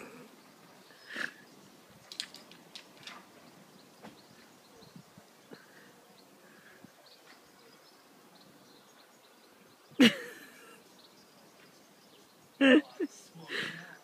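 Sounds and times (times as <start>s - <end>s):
faint bird chirps: 3.1s - 14.0s.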